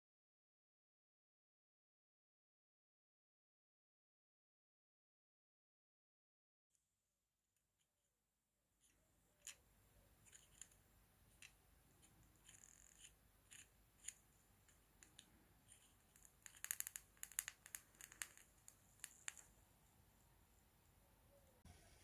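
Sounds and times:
solder flux crackling: 0:15.0 - 0:19.6.

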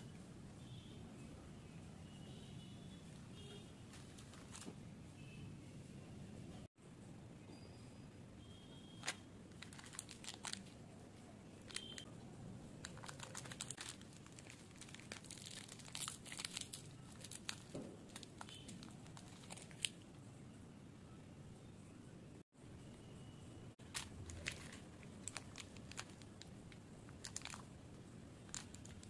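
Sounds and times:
plastic wrapper crinkling: 0:09.0 - 0:10.8, 0:11.7 - 0:12.0, 0:12.8 - 0:20.0, 0:23.8 - 0:27.8, 0:28.4 - 0:29.0.

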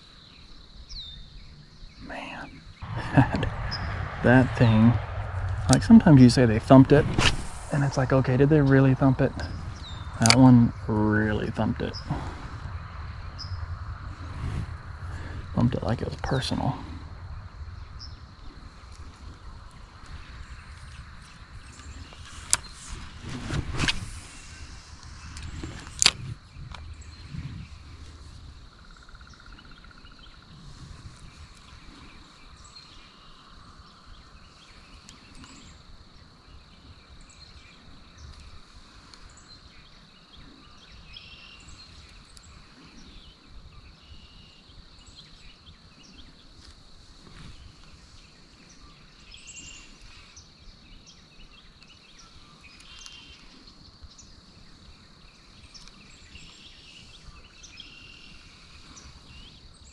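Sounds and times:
birds chirping: 0:00.0 - 0:22.9, 0:24.3 - 0:30.5
faint low rumble: 0:02.8 - 0:32.5.

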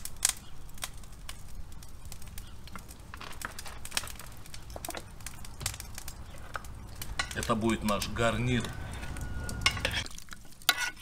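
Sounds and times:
plastic bottle crackling: 0:02.1 - 0:07.5.

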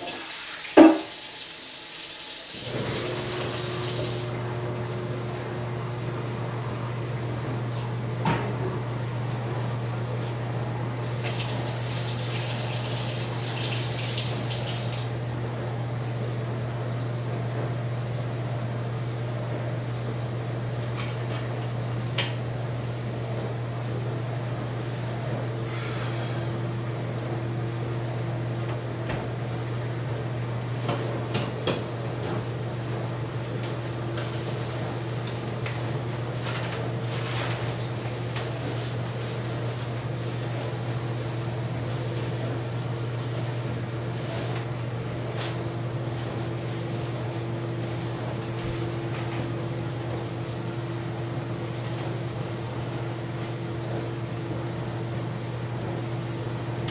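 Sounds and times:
tap running: 0:00.0 - 0:01.2
dishes clinking and knocking: 0:00.8 - 0:01.1
plastic trash bag rustling: 0:35.7 - 0:53.8.

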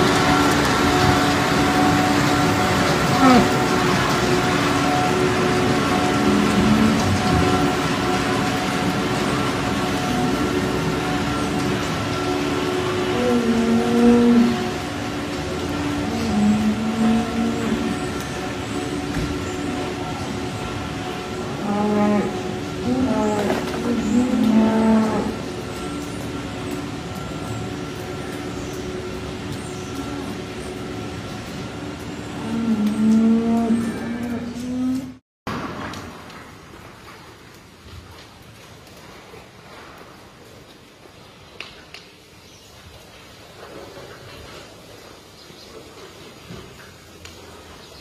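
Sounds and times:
cow mooing: 0:00.0 - 0:25.8, 0:32.2 - 0:35.2
tractor and feed mixer drone: 0:00.0 - 0:36.6
farm machinery hum: 0:00.0 - 0:37.6.

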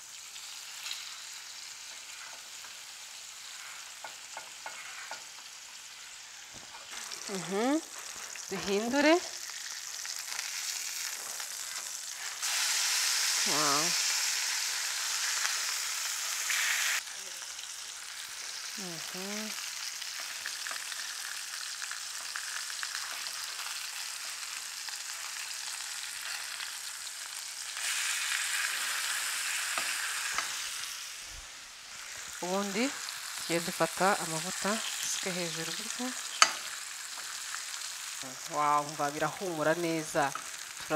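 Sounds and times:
fish sizzling in a frying pan: 0:00.0 - 0:40.9
spatula scraping a pan: 0:01.9 - 0:05.4.

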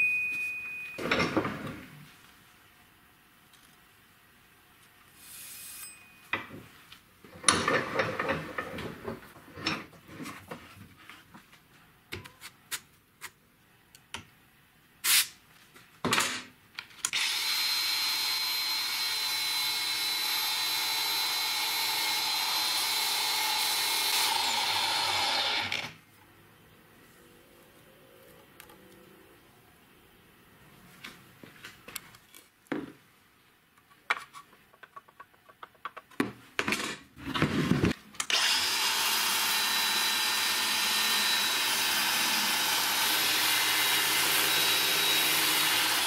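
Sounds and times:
angle grinder whining: 0:17.1 - 0:26.0, 0:38.3 - 0:46.0.

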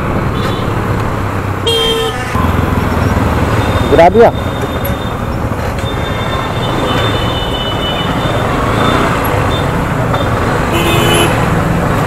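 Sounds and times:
motorcycle engine and road rumble: 0:00.0 - 0:12.0.

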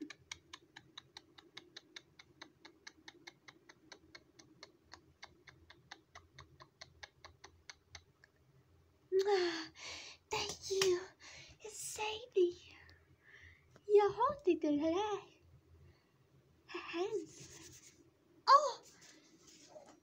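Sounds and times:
faint hum: 0:00.0 - 0:20.0
child's voice: 0:10.3 - 0:12.7, 0:13.9 - 0:15.3, 0:18.5 - 0:18.9.

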